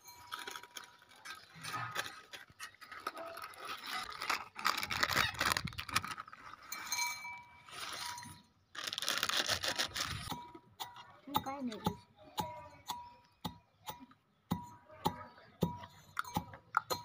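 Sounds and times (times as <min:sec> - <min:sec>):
plastic packets rustling: 0:00.0 - 0:10.4.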